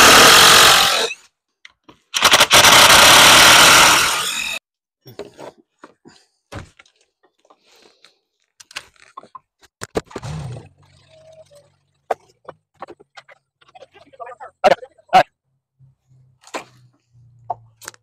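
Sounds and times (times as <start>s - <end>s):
power tool cutting wood: 0.0s - 1.2s, 2.2s - 4.6s
knocks and scrapes of wood: 5.0s - 7.7s, 12.0s - 13.7s.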